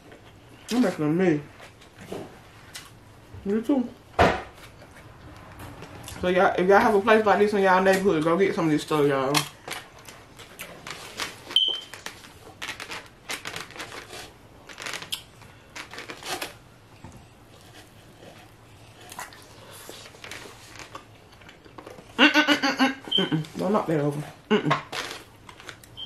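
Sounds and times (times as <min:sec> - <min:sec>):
chewing with wet clicks: 0:15.1 - 0:15.3.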